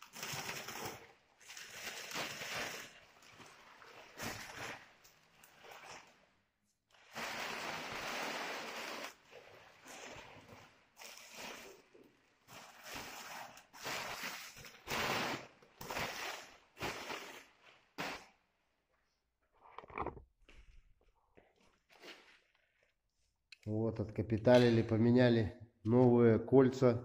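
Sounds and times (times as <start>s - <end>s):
paper wrapping crinkling: 0.0s - 4.8s.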